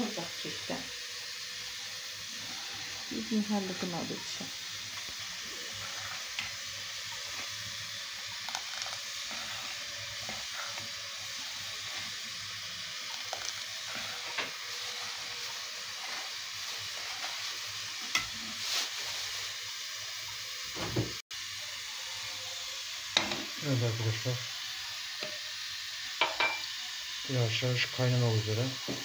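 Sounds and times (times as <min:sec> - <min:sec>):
gas burner hissing: 0:00.0 - 0:29.0
utensil tapping and scraping pot: 0:04.2 - 0:18.4
spatula stirring pudding in pot: 0:05.1 - 0:18.5.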